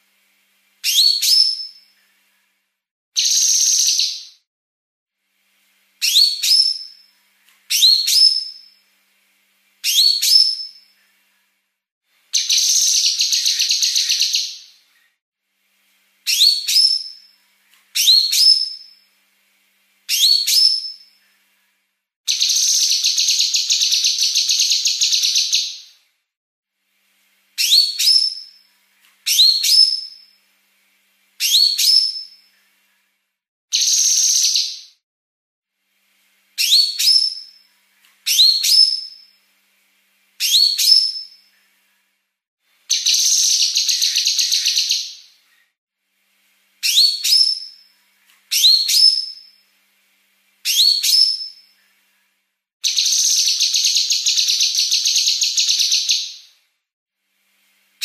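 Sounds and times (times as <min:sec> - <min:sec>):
bird whistled notes: 0:00.9 - 0:01.9, 0:03.2 - 0:04.4, 0:06.0 - 0:07.0, 0:07.7 - 0:08.7, 0:09.9 - 0:10.8, 0:12.4 - 0:14.7, 0:16.3 - 0:17.2, 0:18.0 - 0:19.0, 0:20.1 - 0:21.1, 0:27.6 - 0:28.6, 0:29.3 - 0:30.3, 0:31.4 - 0:32.4, 0:33.7 - 0:35.0, 0:36.6 - 0:37.6, 0:38.3 - 0:39.3, 0:40.4 - 0:41.4, 0:46.8 - 0:47.8, 0:48.5 - 0:49.6, 0:50.7 - 0:51.7.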